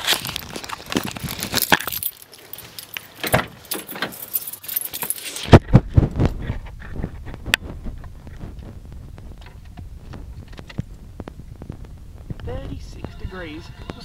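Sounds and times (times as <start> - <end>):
car keys jangling: 0.2 - 5.5.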